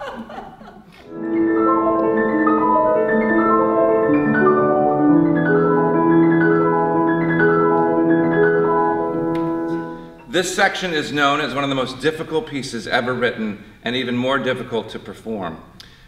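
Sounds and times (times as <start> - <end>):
grand piano playing: 1.0 - 13.4.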